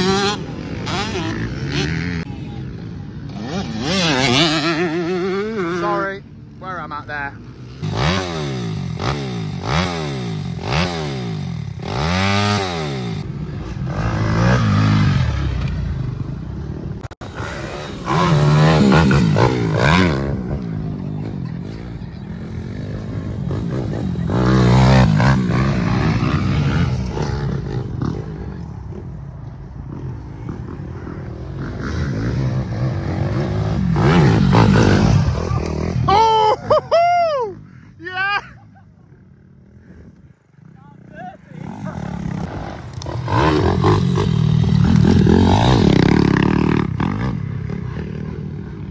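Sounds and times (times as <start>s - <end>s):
dirt bike engine revving: 0.0s - 29.0s, 29.8s - 36.6s, 41.0s - 48.9s.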